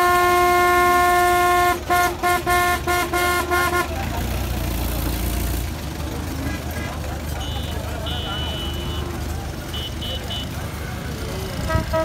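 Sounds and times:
vehicle horn blowing: 0.0 - 4.0, 7.4 - 10.6, 11.6 - 12.0.

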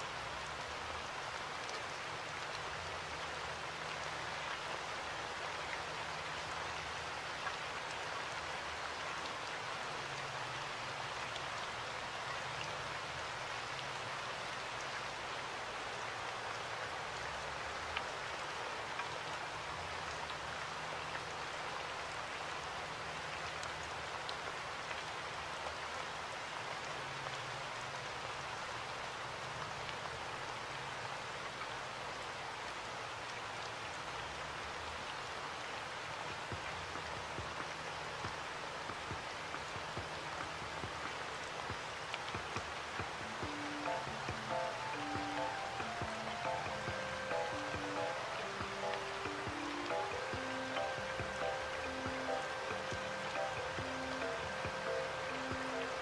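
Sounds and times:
steady hiss: 26.9 - 56.0.

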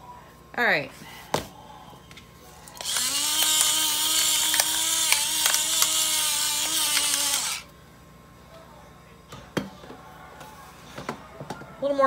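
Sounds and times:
electric pepper mill grinding: 2.8 - 7.7.

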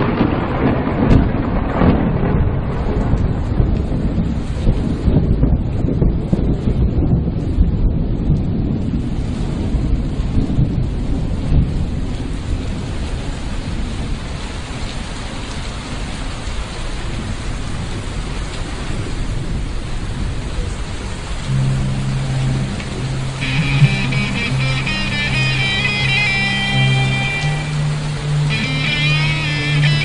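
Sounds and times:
rolling thunder: 0.0 - 15.1, 17.0 - 25.7
heavy rain: 0.0 - 30.0
low held music note: 21.5 - 30.0.

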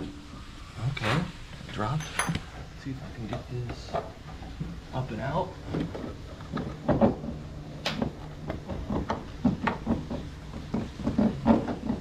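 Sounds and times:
metal tools clunking and rattling: 1.7 - 2.7.

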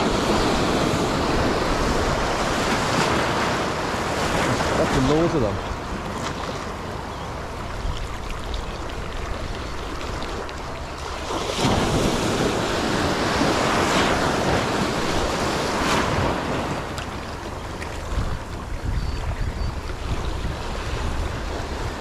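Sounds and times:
surf breaking over rocks: 0.0 - 6.8, 10.0 - 18.4
wind on microphone: 0.0 - 22.0.

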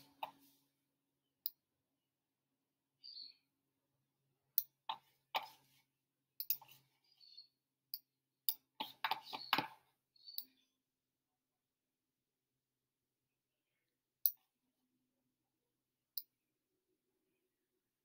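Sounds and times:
computer mouse clicks: 6.4 - 6.8.

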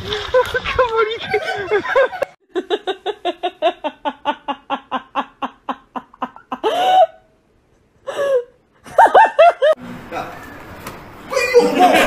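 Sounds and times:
person giggling: 11.3 - 12.0.

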